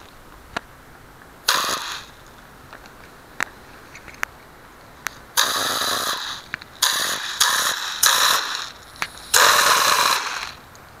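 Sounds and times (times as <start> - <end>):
hissing air blasts: 1.4 - 2.2, 5.3 - 10.7
sharp clicks: 5.0 - 10.9.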